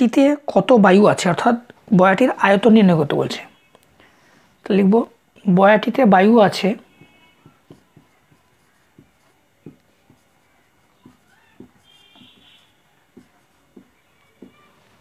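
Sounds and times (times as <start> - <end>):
marker pen writing on paper: 6.0 - 15.0.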